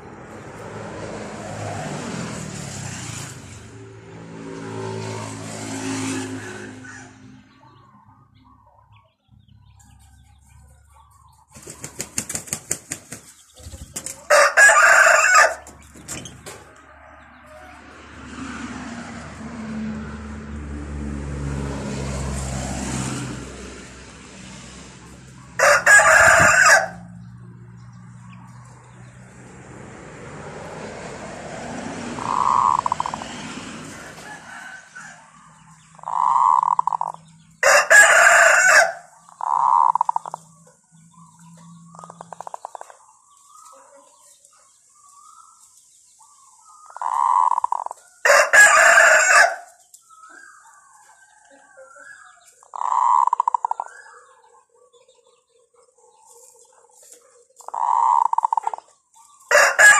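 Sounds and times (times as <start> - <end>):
roosters crowing: 0.0 - 8.6, 13.9 - 44.3, 46.6 - 55.6, 57.6 - 59.9
bird wings flapping: 11.5 - 14.2.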